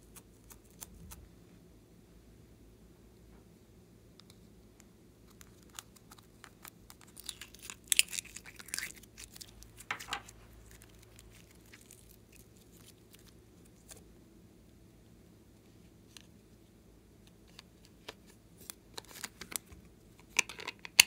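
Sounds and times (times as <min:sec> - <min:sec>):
sticky clay crackling and tearing: 0:05.3 - 0:14.0.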